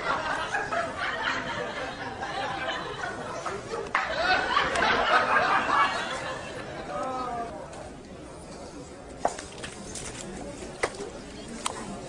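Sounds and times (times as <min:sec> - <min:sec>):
people laughing: 0:00.0 - 0:07.6
people chattering and snickering: 0:00.0 - 0:12.0.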